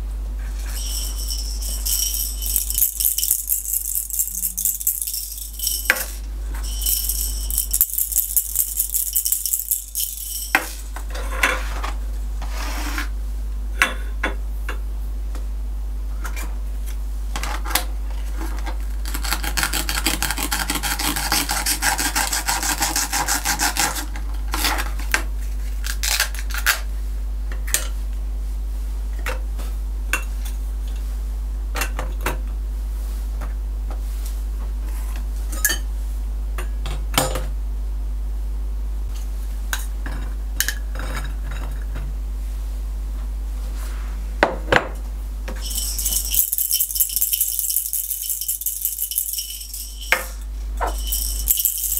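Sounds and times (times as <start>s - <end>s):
low steady hum: 0.0s - 51.9s
plastic toys clattering: 45.6s - 51.9s.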